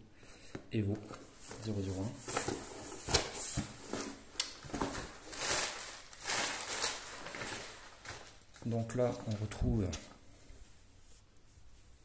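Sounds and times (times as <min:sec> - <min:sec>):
cardboard and paper rustling: 0:01.0 - 0:09.7.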